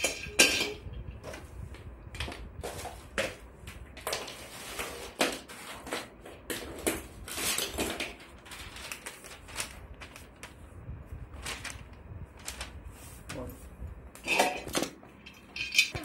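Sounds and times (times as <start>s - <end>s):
plastic pieces clattering on wood: 4.0s - 8.6s
paper rustling: 4.1s - 13.8s
plastic bags crinkling: 6.5s - 13.5s.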